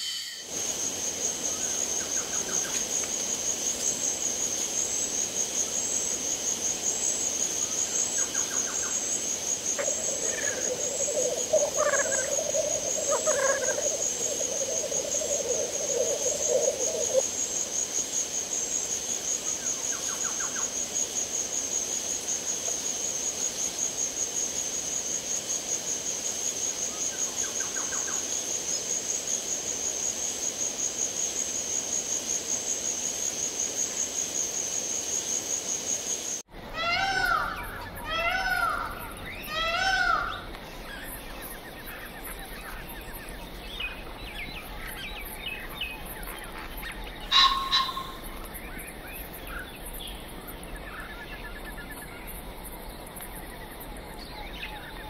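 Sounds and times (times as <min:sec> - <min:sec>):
pulsing insect chorus: 0:00.0 - 0:55.0
low hooting call: 0:09.8 - 0:17.2, 0:47.3 - 0:48.4
bird trills and calls: 0:36.8 - 0:48.5.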